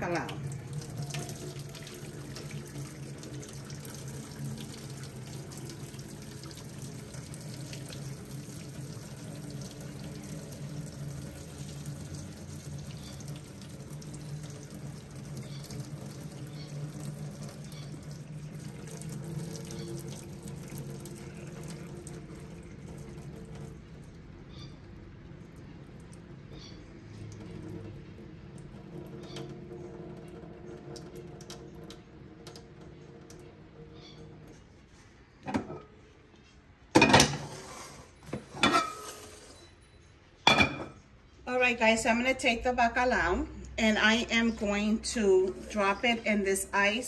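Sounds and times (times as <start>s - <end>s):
water pouring into metal sink: 0.0s - 34.7s.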